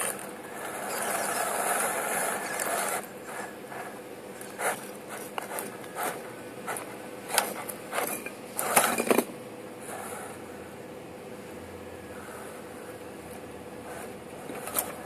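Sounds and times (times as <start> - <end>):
toy car scraping against rocks: 0.0 - 6.2
faint drivetrain whine: 0.0 - 7.6.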